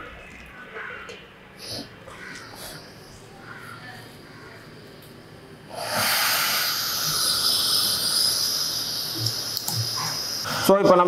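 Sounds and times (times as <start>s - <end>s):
gas burner hissing: 4.7s - 11.0s.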